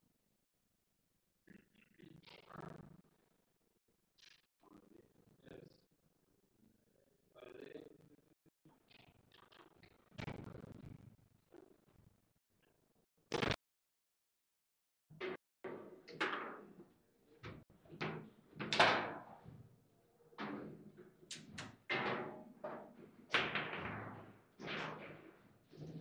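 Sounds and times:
foosball knocks and clacks: 15.2s - 19.6s, 20.4s - 26.0s.

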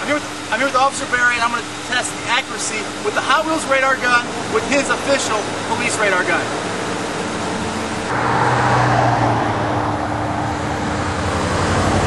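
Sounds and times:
steady low hum: 0.0s - 8.2s
vehicle driving past: 6.6s - 12.0s.

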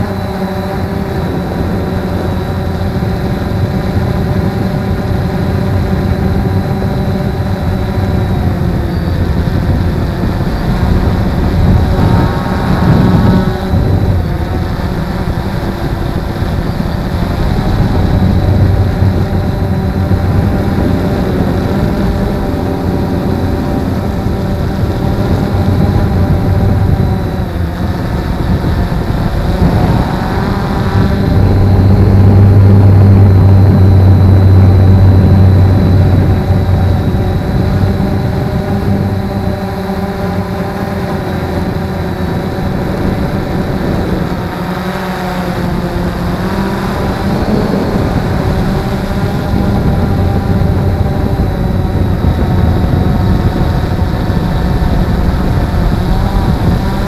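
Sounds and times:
quadcopter propellers whirring: 0.0s - 57.0s.

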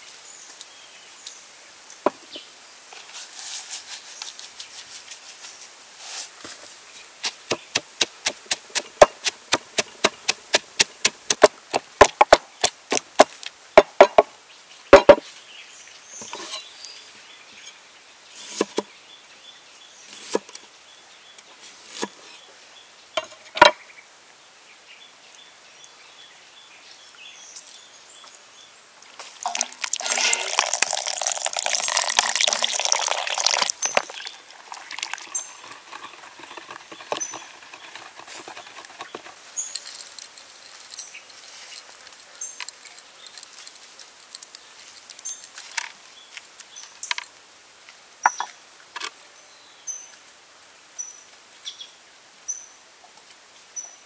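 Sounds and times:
knife cutting on wooden board: 7.2s - 13.3s
liquid pouring and splashing: 29.2s - 39.8s.

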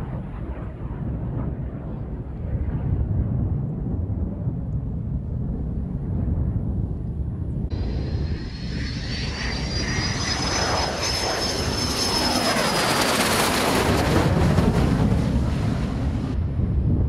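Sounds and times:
jet aircraft flying past: 7.7s - 16.8s.

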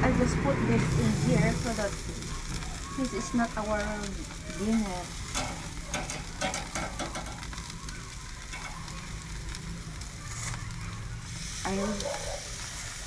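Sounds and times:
chicken sizzling on grill: 0.0s - 13.0s
metal tongs clicking on grate: 5.3s - 7.6s.

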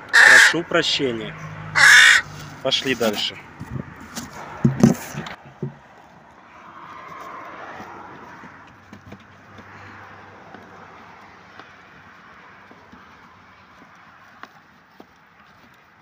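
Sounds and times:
car passing: 0.0s - 14.3s.

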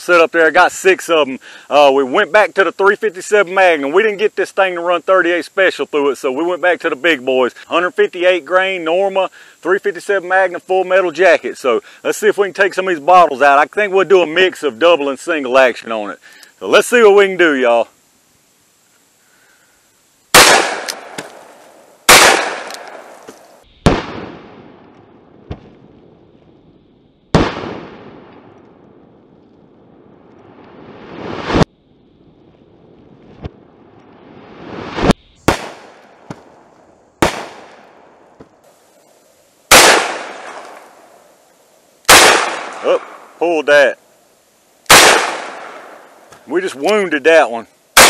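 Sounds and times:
revolver shots echoing: 22.1s - 23.2s.

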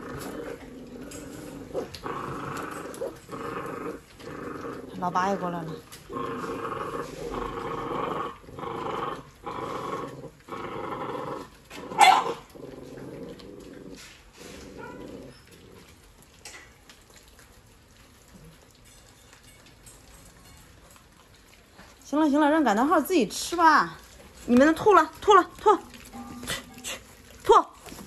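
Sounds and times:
puppies growling: 0.0s - 28.0s
puppy yelping: 12.0s - 12.4s, 14.8s - 15.6s.

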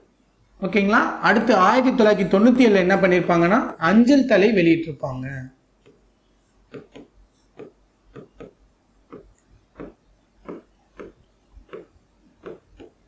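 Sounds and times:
pen tapping on screen: 6.7s - 13.0s.

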